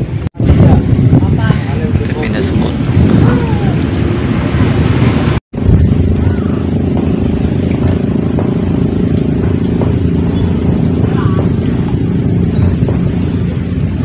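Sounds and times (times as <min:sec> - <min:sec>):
engine running steadily: 0:00.0 - 0:14.0.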